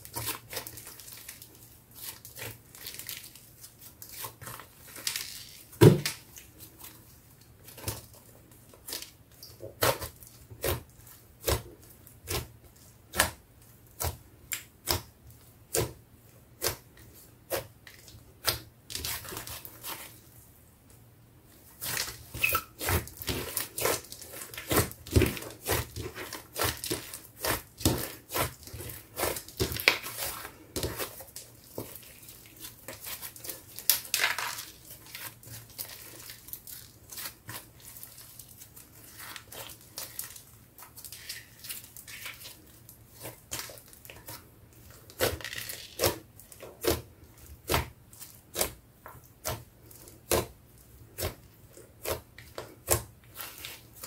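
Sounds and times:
slime popping and crackling: 0:21.8 - 0:50.6.

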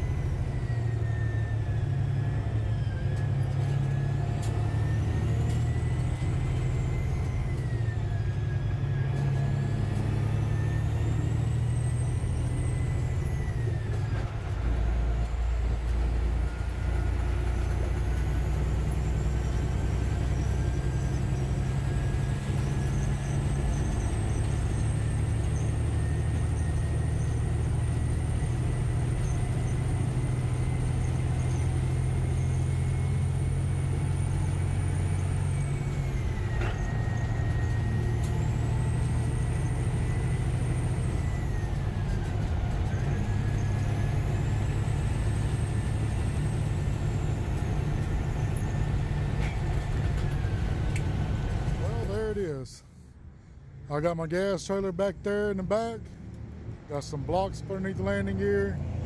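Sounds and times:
diesel engine drone: 0:00.0 - 0:59.0.

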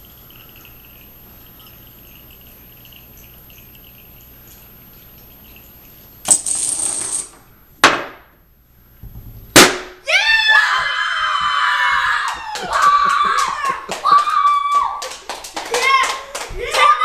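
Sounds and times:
dominoes clattering: 0:06.3 - 0:07.4
balloon popping: 0:09.0 - 0:10.0
sharp knock: 0:09.0 - 0:10.0
girl screaming and cheering: 0:10.0 - 0:17.0.

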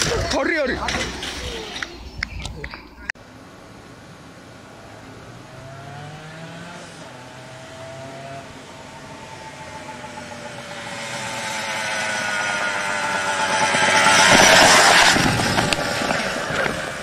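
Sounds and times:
motorcycle engine approaching: 0:04.8 - 0:17.0.

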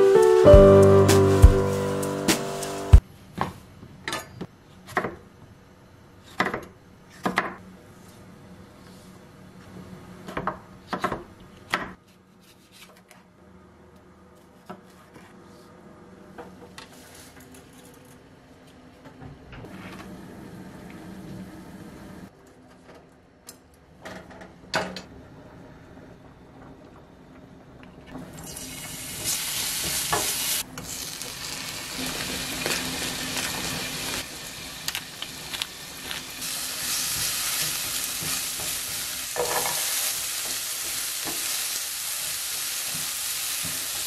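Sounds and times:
piano music: 0:00.0 - 0:03.0.

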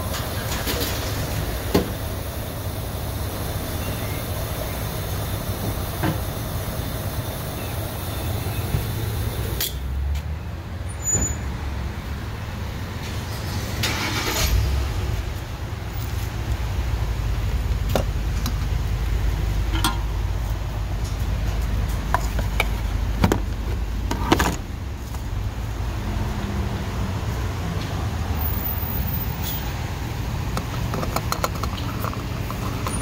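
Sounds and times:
fuel pump dispensing gasoline: 0:29.4 - 0:33.0.

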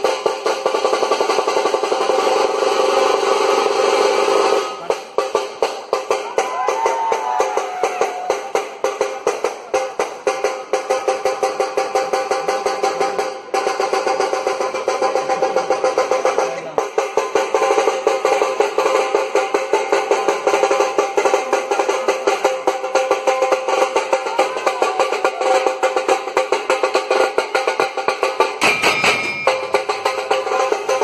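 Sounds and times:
dhol drums beating: 0:00.0 - 0:31.0
high snare-like tasha drums: 0:00.0 - 0:31.0
brief shrill sound: 0:28.6 - 0:29.9.

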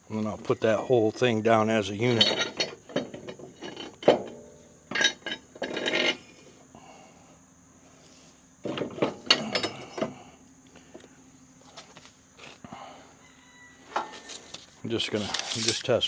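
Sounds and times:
steel parts clinking: 0:02.0 - 0:06.2, 0:08.8 - 0:10.1.

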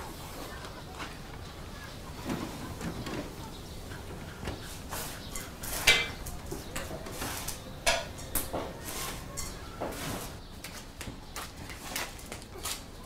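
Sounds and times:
dishes and utensils clinking: 0:04.5 - 0:10.4.

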